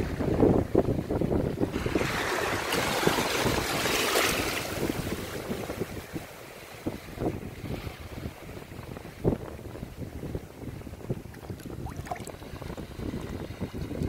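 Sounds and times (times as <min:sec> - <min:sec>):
wind buffeting microphone: 0:00.0 - 0:14.0
water splashing in shallow surf: 0:01.7 - 0:09.2, 0:10.7 - 0:14.0.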